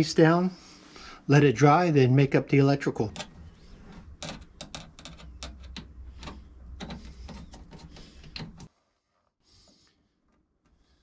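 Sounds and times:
hose fittings clicking and rattling: 3.0 - 8.7.

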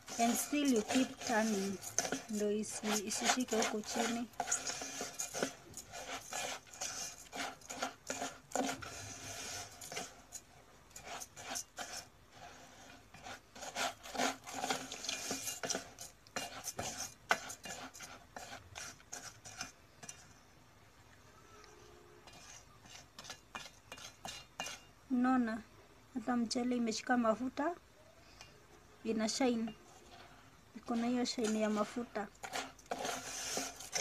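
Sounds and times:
spatula scraping a metal pot: 0.0 - 20.5, 21.6 - 25.0, 28.3 - 34.0.

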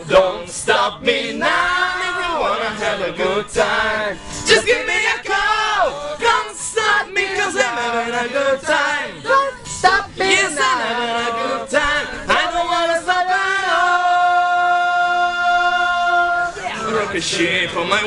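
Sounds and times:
people singing karaoke: 0.0 - 18.0.

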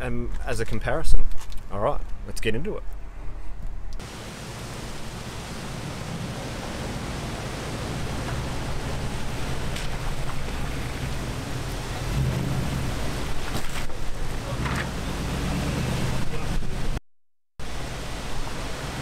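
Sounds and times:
engine working under load: 4.0 - 17.0.

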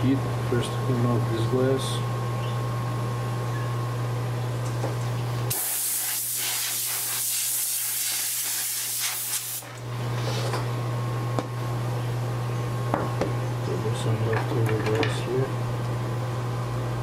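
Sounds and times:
heat gun hissing: 5.5 - 9.6.

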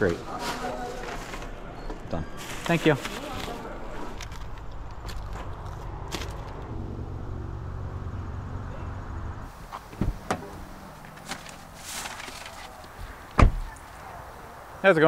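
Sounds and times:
plastic bag rustling: 0.0 - 6.6, 10.9 - 13.3
low rumble: 3.8 - 9.5
car door clunks: 9.8 - 10.6, 13.3 - 13.8.

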